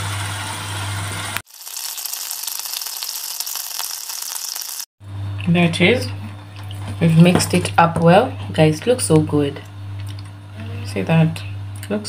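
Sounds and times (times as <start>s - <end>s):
meat sizzling in a saucepan: 0.1s - 4.9s.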